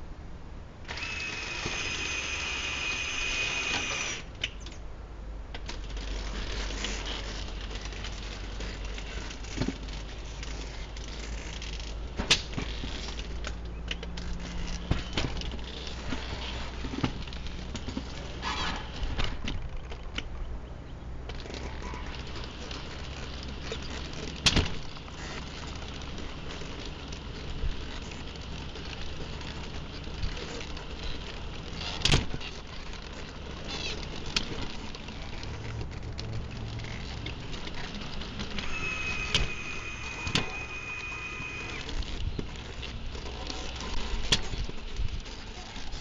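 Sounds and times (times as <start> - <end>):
steady high whine: 0.0 - 11.8, 36.8 - 45.8
low steady hum: 0.0 - 46.0.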